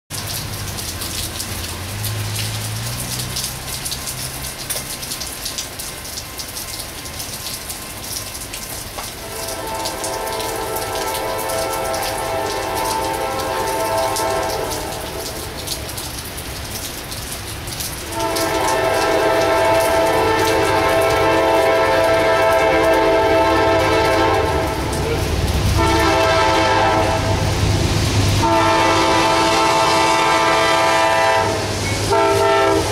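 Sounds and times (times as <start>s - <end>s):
steady rain with drips: 0.1s - 32.9s
locomotive air horn blast: 9.2s - 15.6s, 18.1s - 27.6s, 28.4s - 32.9s.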